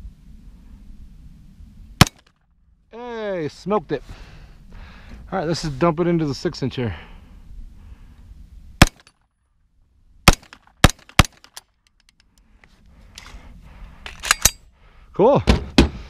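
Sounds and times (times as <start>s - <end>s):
pistol shots: 8.8s - 9.1s, 10.2s - 11.6s.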